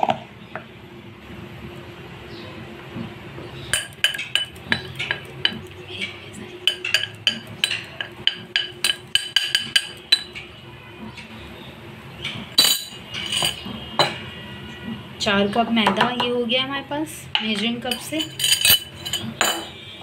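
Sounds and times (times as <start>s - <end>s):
metal cup clinking against glass bowl: 3.7s - 10.5s, 12.2s - 14.2s, 17.4s - 19.8s.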